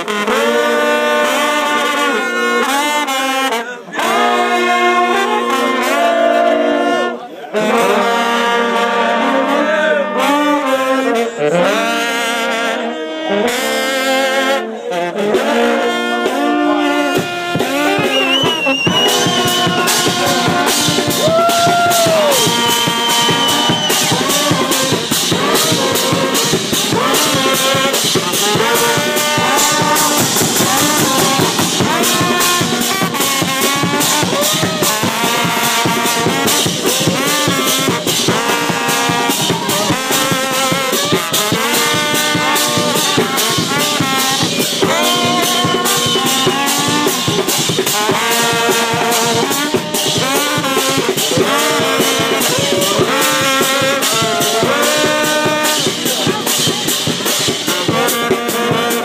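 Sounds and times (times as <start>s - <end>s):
brass band playing: 0.0s - 59.0s
high held horn note: 0.0s - 59.0s
drums: 15.2s - 59.0s.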